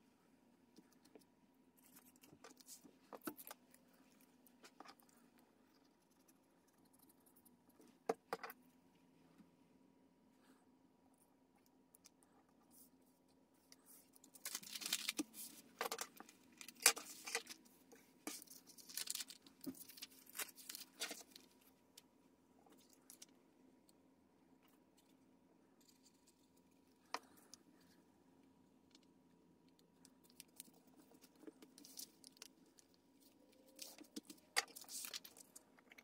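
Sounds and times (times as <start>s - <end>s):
paper rustling and crinkling: 14.2s - 17.6s, 18.2s - 21.6s, 33.7s - 35.5s.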